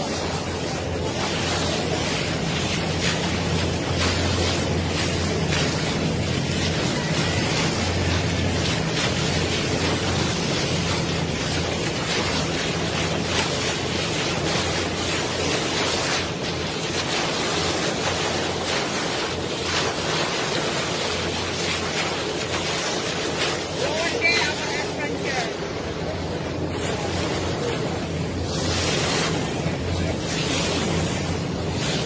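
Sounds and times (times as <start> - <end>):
boat engine hum: 0.0 - 32.0
sea wash: 0.0 - 32.0.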